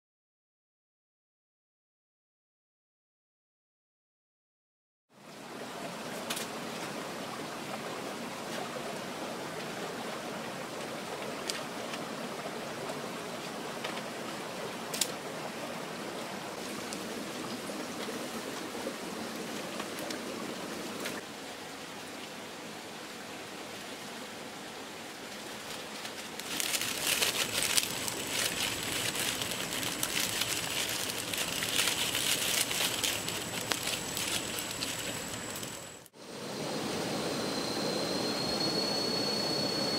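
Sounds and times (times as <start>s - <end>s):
stream flowing: 5.1s - 39.9s
dry sticks snapping: 14.9s - 15.2s, 25.7s - 35.8s
fire crackling: 25.5s - 36.1s.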